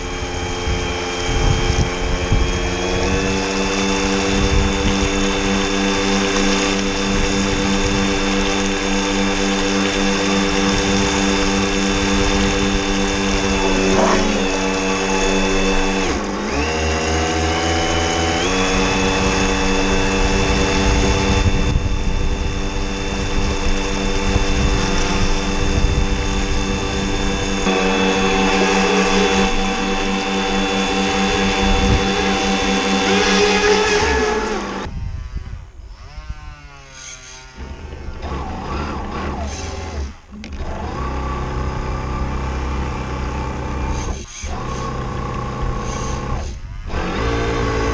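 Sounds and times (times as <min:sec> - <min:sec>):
wind buffeting microphone: 0:00.0 - 0:08.8, 0:18.4 - 0:36.7
electric motor whining: 0:00.0 - 0:47.9.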